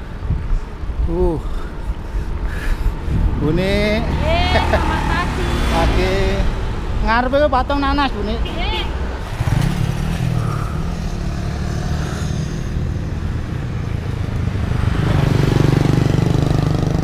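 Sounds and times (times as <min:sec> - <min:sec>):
motorcycle engine running: 0:14.7 - 0:17.0.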